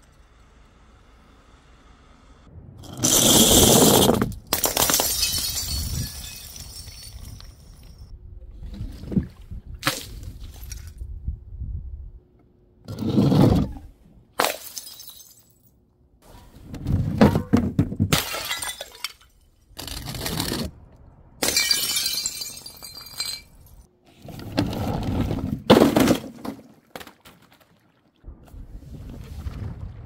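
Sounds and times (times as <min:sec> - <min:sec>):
objects hitting concrete: 0:02.8 - 0:08.1
glass jar smashing: 0:03.0 - 0:08.0, 0:14.4 - 0:15.6, 0:18.1 - 0:19.3, 0:21.4 - 0:23.8.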